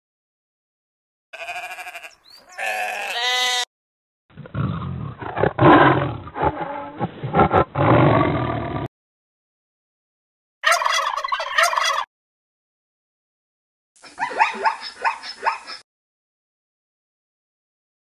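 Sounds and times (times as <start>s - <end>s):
sheep bleating: 1.4s - 3.7s
tiger roaring and growling: 4.3s - 8.9s.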